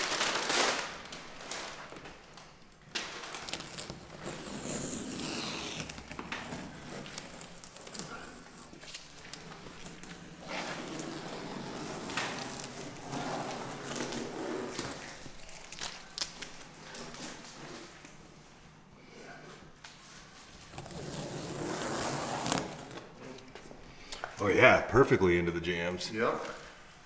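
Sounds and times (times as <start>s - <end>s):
masking tape peeling: 0.0s - 18.2s, 20.4s - 23.5s.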